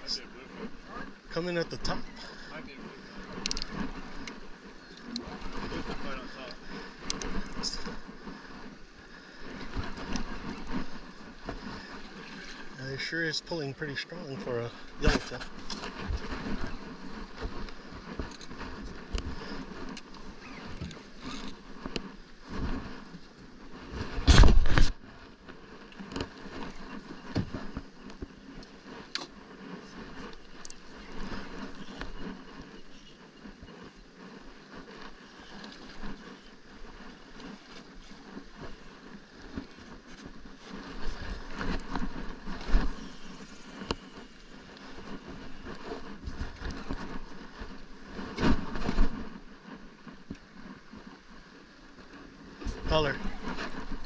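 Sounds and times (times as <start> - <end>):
sea noise: 0.0 - 54.0
water lapping around boat: 0.0 - 54.0
wind: 0.0 - 54.0.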